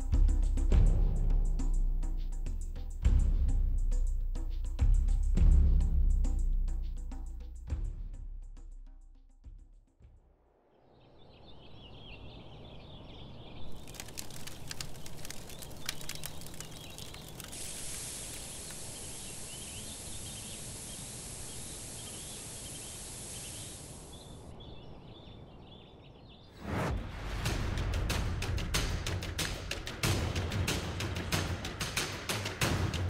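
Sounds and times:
birds calling: 0:11.0 - 0:26.6
sharp clicks: 0:13.7 - 0:18.9
steady hiss: 0:13.7 - 0:24.6.

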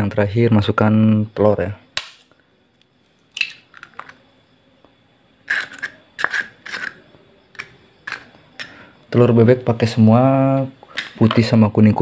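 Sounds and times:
eggshell cracking: 0:05.4 - 0:08.8.

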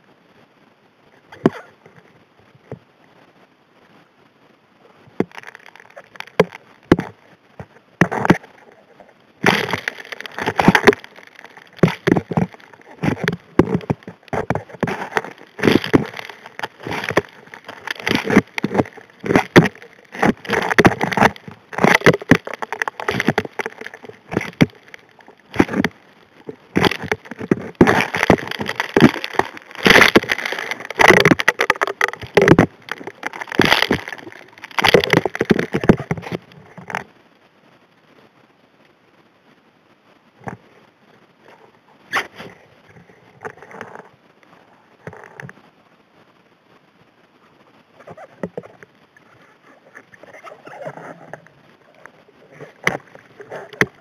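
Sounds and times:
stones rattling against metal nozzle underwater: 0:05.2 - 0:37.1, 0:50.0 - 0:54.0.

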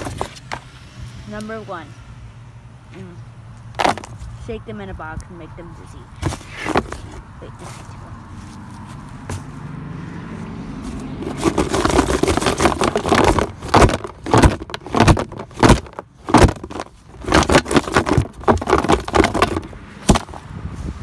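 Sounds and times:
toys rattling in cardboard box: 0:00.0 - 0:00.6, 0:03.8 - 0:04.2, 0:06.2 - 0:07.9, 0:11.0 - 0:20.4.

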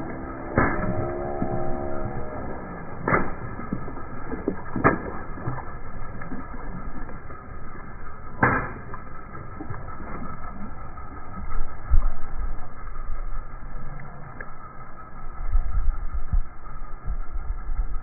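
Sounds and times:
water balloons popping: 0:00.0 - 0:10.9.

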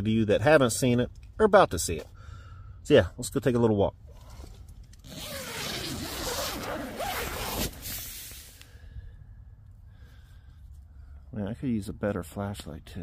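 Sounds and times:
tent zipper pulled open: 0:04.2 - 0:08.5.

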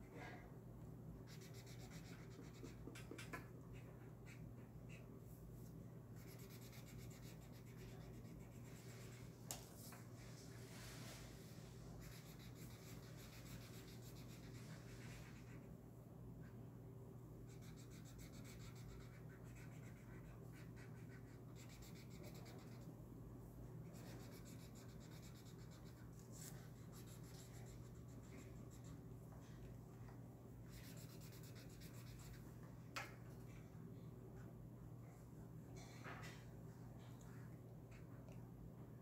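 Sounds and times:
marker scratching on paper: 0:01.3 - 0:05.1, 0:06.2 - 0:09.2, 0:12.0 - 0:15.7, 0:17.5 - 0:22.9, 0:23.9 - 0:29.0, 0:30.7 - 0:32.4.

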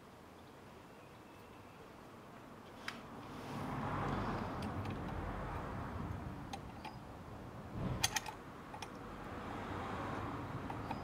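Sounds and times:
metallic clicks of air fitting: 0:08.0 - 0:09.1.

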